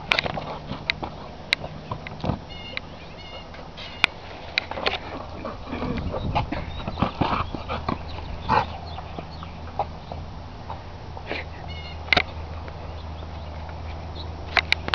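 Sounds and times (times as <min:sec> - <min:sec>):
footsteps crunching: 0:00.0 - 0:12.8
dog's paws scuffling: 0:00.0 - 0:14.9
rubber ball rolling on concrete: 0:04.5 - 0:10.9.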